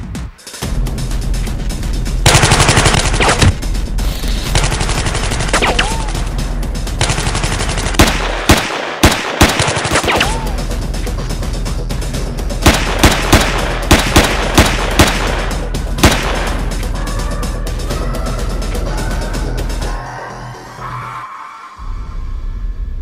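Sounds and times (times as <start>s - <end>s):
rapid machine-gun fire: 2.2s - 3.6s, 4.5s - 5.8s, 7.0s - 10.2s, 12.6s - 16.6s
electronic music: 10.0s - 12.7s, 15.2s - 22.5s.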